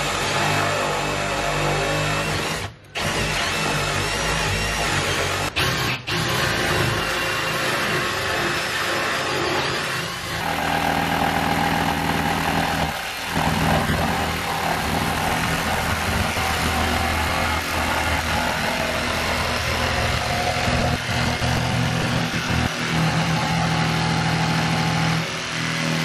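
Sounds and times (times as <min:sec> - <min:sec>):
oscillating multi-tool cutting wood: 0:00.0 - 0:26.0.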